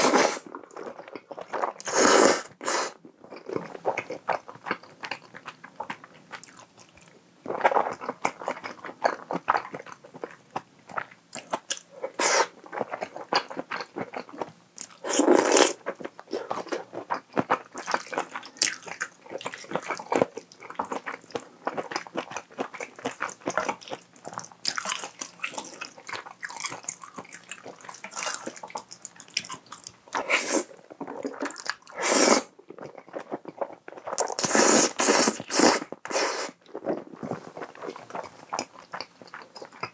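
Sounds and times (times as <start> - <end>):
slurping noodles: 0.0 - 0.5, 1.8 - 3.0, 30.2 - 32.9, 34.2 - 37.8.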